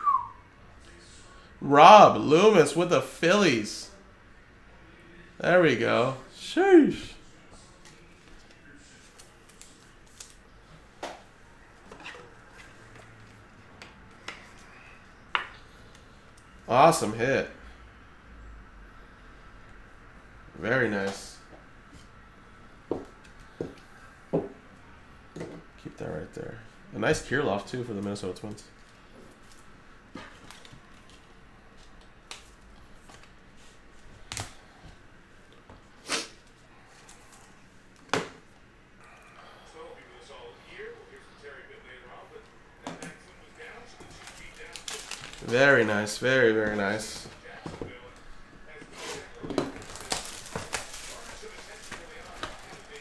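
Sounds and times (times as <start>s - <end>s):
trading cards rustling: 43.9s - 47.4s, 49.1s - 53.0s.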